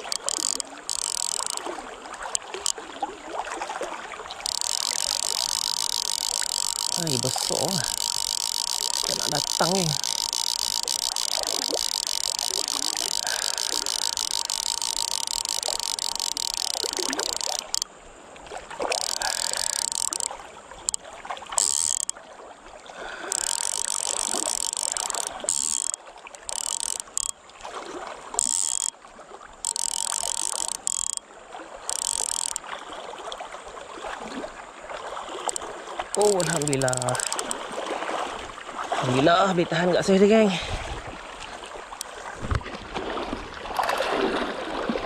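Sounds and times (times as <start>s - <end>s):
fishing reel buzzing and clicking: 0.0s - 2.8s, 4.2s - 17.9s, 18.8s - 22.2s, 23.0s - 27.7s, 28.3s - 29.0s, 29.6s - 33.4s, 35.3s - 37.8s, 43.7s - 44.1s
river water running: 0.0s - 45.0s.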